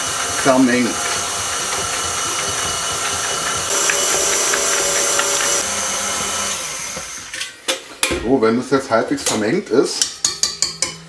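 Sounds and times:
stand mixer whisking batter: 0.0s - 7.1s.

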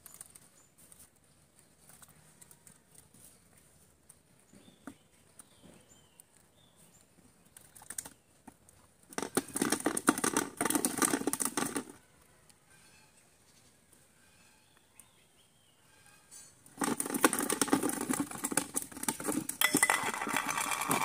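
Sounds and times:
fish flapping in plastic bucket: 9.1s - 12.0s, 16.8s - 21.0s.

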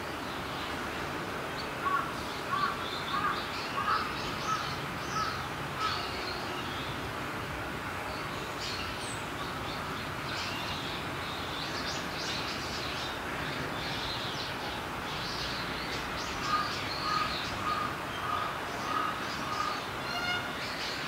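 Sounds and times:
birds chirping: 8.1s - 21.0s.

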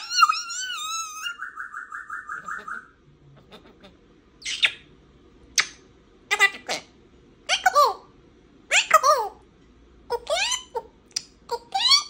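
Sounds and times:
parrot whistling and trilling: 0.0s - 3.0s, 4.4s - 4.9s
parrot sharp calls: 0.0s - 4.9s.

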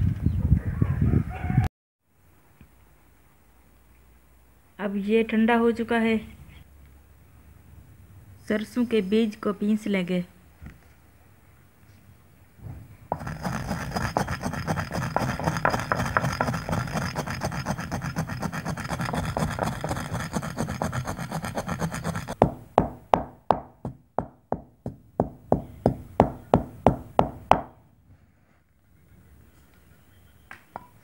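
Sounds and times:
pestle grinding seeds: 13.1s - 27.6s
pestle pounding seeds: 13.1s - 27.7s.

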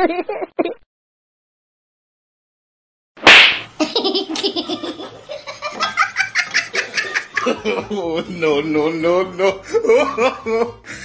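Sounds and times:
person laughing: 9.4s - 10.8s.

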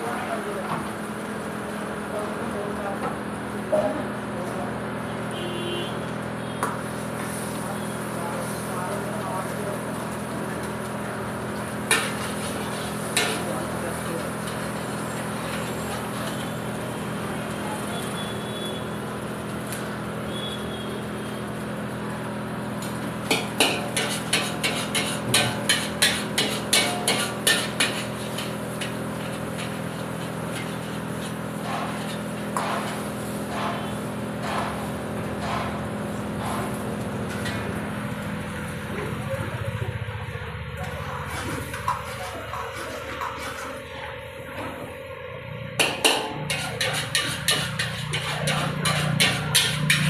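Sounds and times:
metal ladle clanging in wok: 23.4s - 29.8s, 45.8s - 50.0s.

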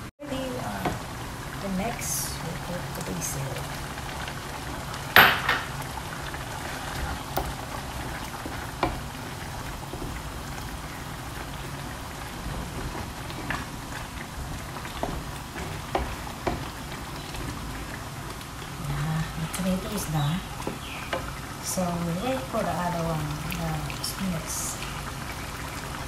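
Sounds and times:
wooden spoon knocking a pan: 5.2s - 5.8s, 14.8s - 17.6s.

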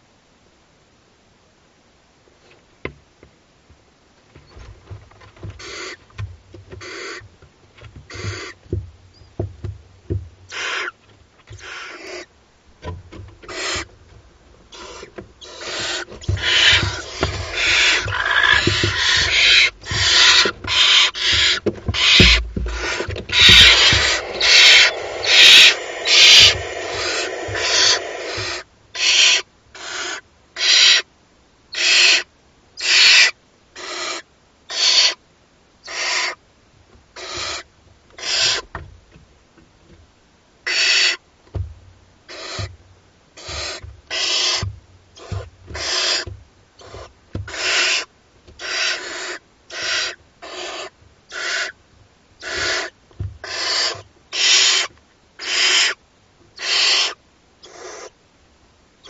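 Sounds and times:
owl chicks hissing calls: 5.4s - 7.3s, 8.0s - 9.4s, 10.5s - 12.3s, 13.4s - 13.9s, 14.7s - 31.1s, 31.7s - 35.2s, 35.8s - 36.4s, 37.2s - 38.7s, 40.6s - 41.2s, 42.3s - 42.8s, 43.4s - 51.8s, 52.4s - 56.0s, 56.6s - 58.2s.

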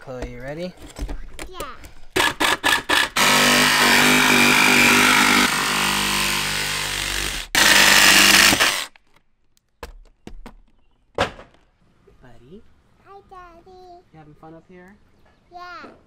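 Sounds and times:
jigsaw cutting sheet metal: 2.2s - 8.9s.

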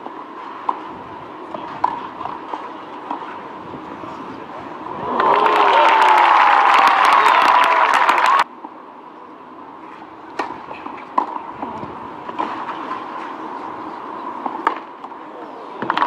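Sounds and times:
quiet crowd murmur: 1.0s - 5.4s, 8.4s - 16.0s
tennis balls struck with rackets: 1.5s - 3.4s, 10.3s - 13.2s, 14.4s - 15.2s
crowd cheering: 4.8s - 8.5s.

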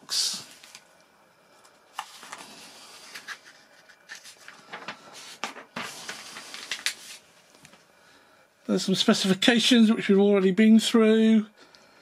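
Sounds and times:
paper pages rustling: 0.4s - 0.9s, 1.6s - 7.8s.

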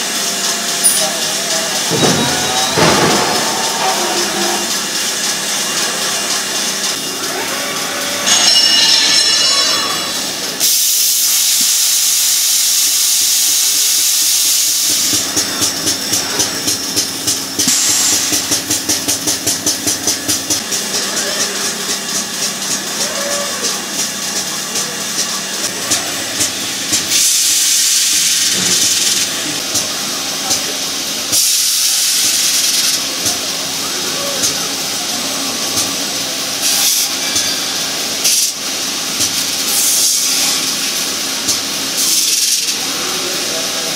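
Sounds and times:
machine hum: 0.0s - 10.6s
belt grinder hissing on metal: 0.0s - 43.9s.

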